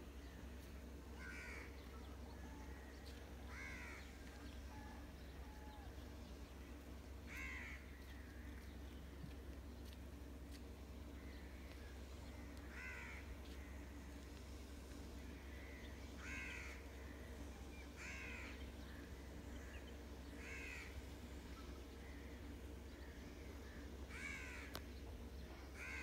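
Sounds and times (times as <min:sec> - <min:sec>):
low steady rumble: 0:00.0 - 0:26.0
crow cawing: 0:01.2 - 0:01.7, 0:03.5 - 0:04.2, 0:07.2 - 0:08.6, 0:12.5 - 0:13.8, 0:15.6 - 0:16.9, 0:18.0 - 0:19.7, 0:20.4 - 0:21.0, 0:23.7 - 0:24.8, 0:25.7 - 0:26.0.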